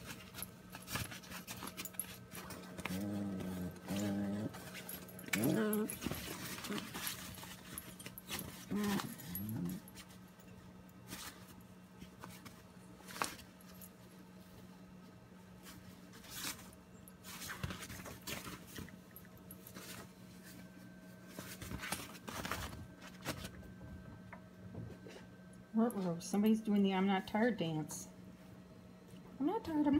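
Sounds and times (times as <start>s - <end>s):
paws rustling on bedsheets: 0.0s - 10.3s, 11.0s - 23.6s
steady low hum: 0.0s - 29.9s.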